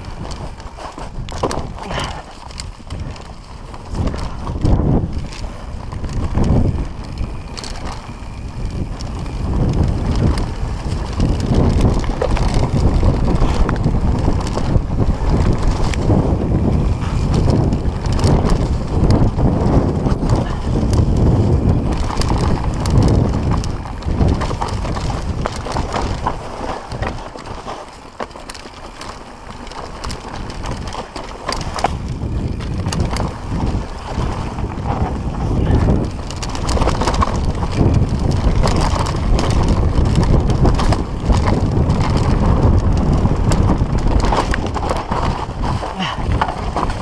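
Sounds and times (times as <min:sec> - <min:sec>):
bike rattling and clicking: 0:00.0 - 0:47.0
tyres rolling over dirt: 0:00.0 - 0:47.0
wind on microphone: 0:00.0 - 0:47.0.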